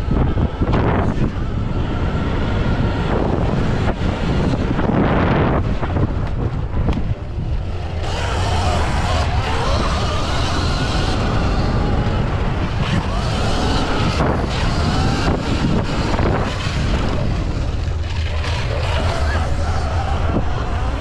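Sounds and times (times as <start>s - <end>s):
wind buffeting microphone: 0.0s - 21.0s
electric motor whine: 7.2s - 21.0s.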